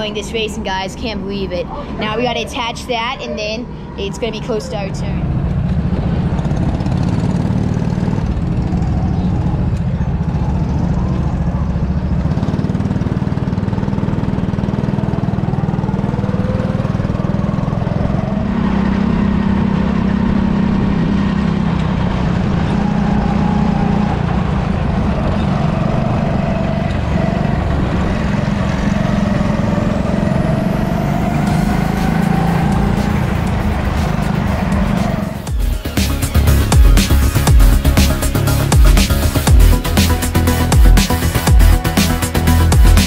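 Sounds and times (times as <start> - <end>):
go-kart engines revving: 0.0 - 43.0.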